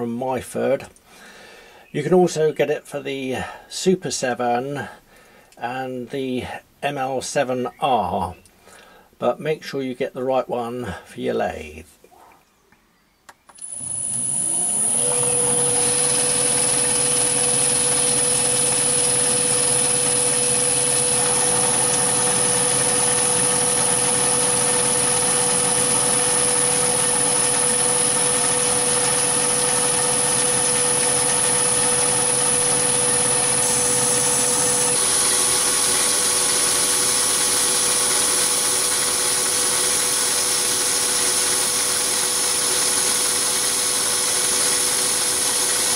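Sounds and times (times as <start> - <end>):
lathe motor humming and whining: 13.6 - 45.9.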